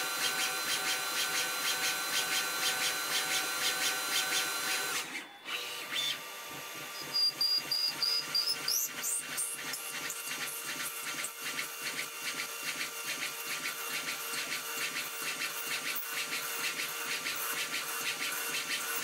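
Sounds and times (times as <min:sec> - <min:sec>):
lathe spindle whine: 0:00.0 - 0:09.1.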